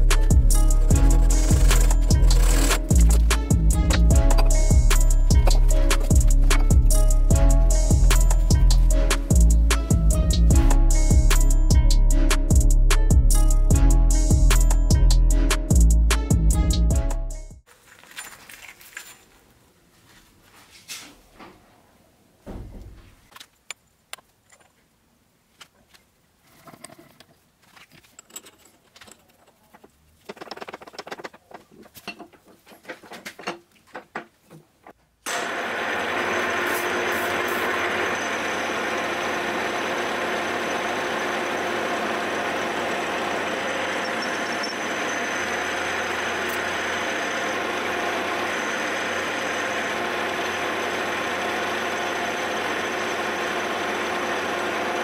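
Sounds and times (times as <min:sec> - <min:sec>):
milling machine cutting metal: 0:00.7 - 0:07.4, 0:35.3 - 0:55.0
faint handling clicks and knocks: 0:25.5 - 0:35.0.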